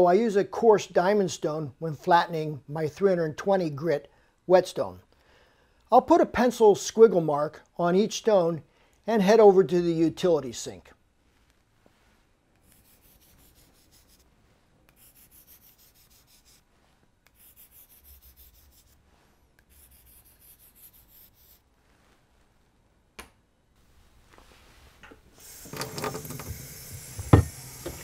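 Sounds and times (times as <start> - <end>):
pencil scratching on stone: 12.6 - 14.3, 14.9 - 19.0, 19.6 - 21.7
tap water running into sink: 25.4 - 28.0.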